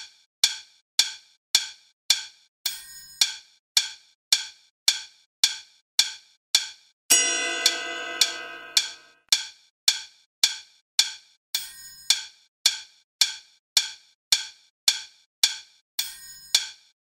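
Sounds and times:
metallic ringing chime: 7.1 - 9.1.

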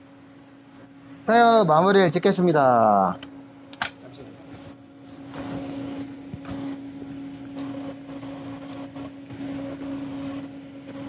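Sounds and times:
welding arc buzzing: 5.3 - 11.0.

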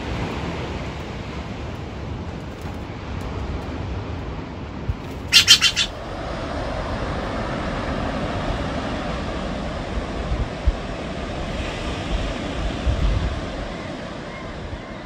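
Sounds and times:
wind: 0.0 - 15.0
jay calling: 5.2 - 6.0.

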